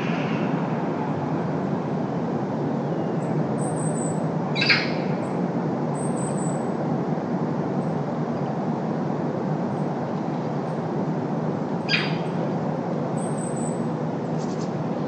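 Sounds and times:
distant road traffic rumble: 0.0 - 15.0
bird call: 3.6 - 5.1, 11.9 - 12.3.

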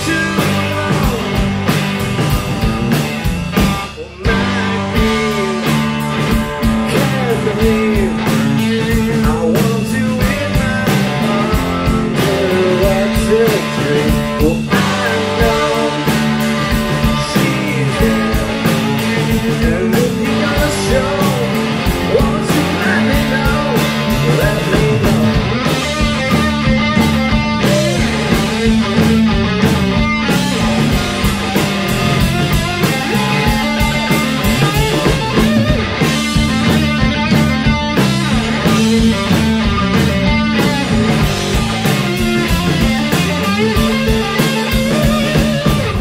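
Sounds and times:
rock music with guitar and bass: 0.0 - 46.0.

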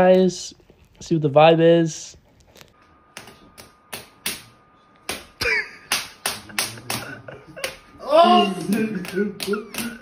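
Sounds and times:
rhythmic hand claps and slaps: 3.1 - 10.0
loud vocal cry: 8.0 - 10.0.

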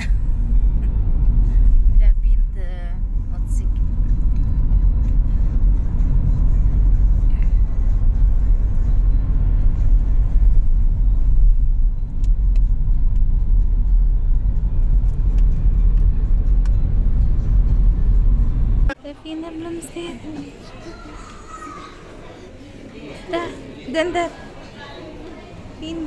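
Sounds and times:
car cabin road rumble: 0.0 - 19.0.

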